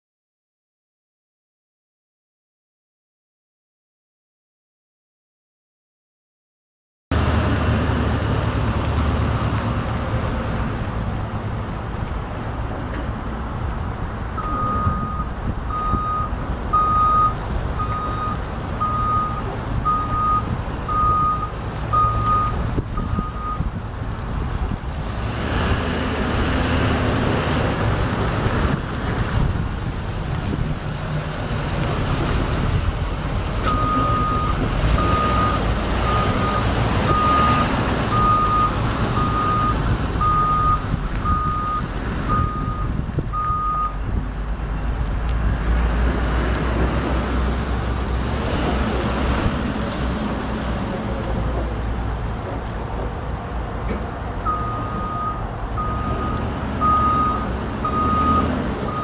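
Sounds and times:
truck engine running: 0:07.1 - 0:59.0
reversing alarm beeping: 0:14.4 - 0:23.6, 0:33.6 - 0:44.0, 0:54.4 - 0:59.0.

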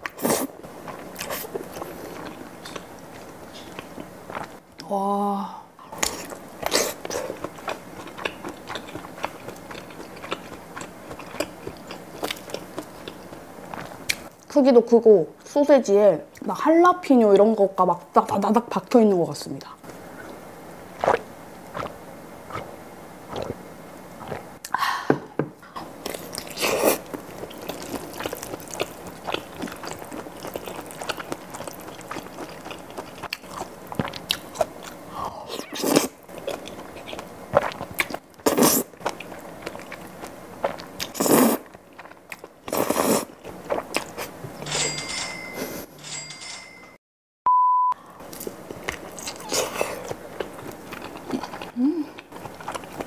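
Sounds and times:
wet chewing: 0:00.0 - 0:04.6, 0:06.0 - 0:14.3, 0:21.0 - 0:22.7, 0:26.0 - 0:35.0, 0:35.8 - 0:44.4, 0:48.3 - 0:53.0
slurping noodles: 0:26.5 - 0:28.7, 0:41.1 - 0:41.7, 0:42.7 - 0:43.4.

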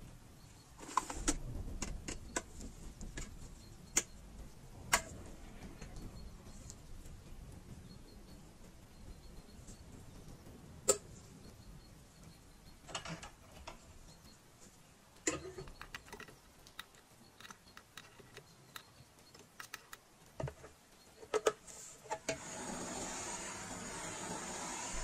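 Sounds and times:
blowtorch hissing: 0:22.4 - 0:25.0.

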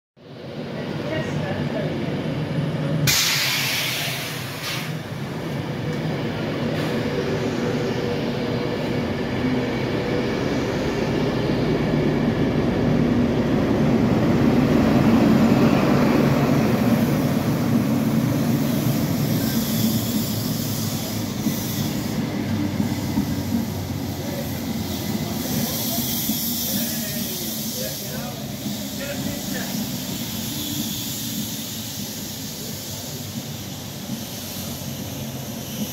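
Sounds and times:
diesel train passing: 0:00.2 - 0:35.9
coaches hissing: 0:14.4 - 0:35.9.

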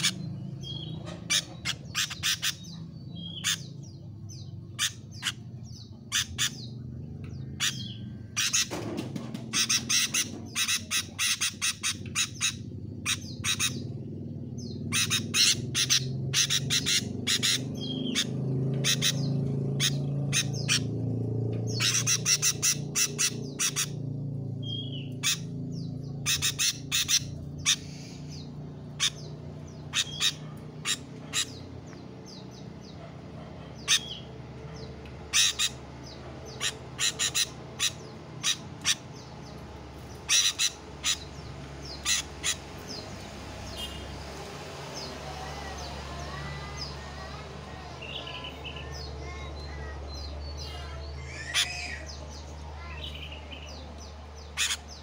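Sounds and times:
bird harsh chattering calls: 0:00.0 - 0:55.0
steady low rumble: 0:09.4 - 0:44.4.

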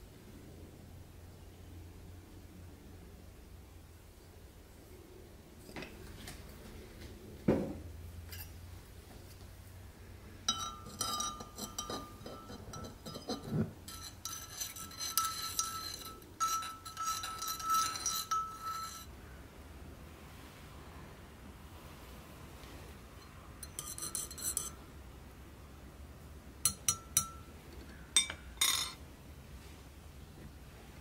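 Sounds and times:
teaspoon clinking in ceramic mug: 0:10.5 - 0:19.1, 0:23.6 - 0:24.8, 0:26.7 - 0:27.5.

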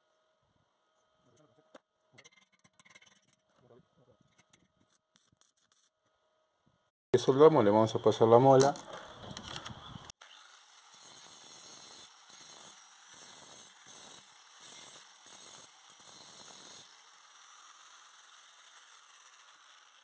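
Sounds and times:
angle grinder grinding metal: 0:10.2 - 0:20.0.

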